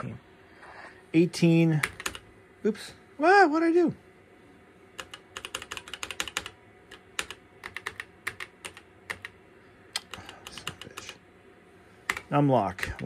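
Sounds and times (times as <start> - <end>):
keyboard keystrokes clicking: 1.8 - 2.2, 5.0 - 9.4.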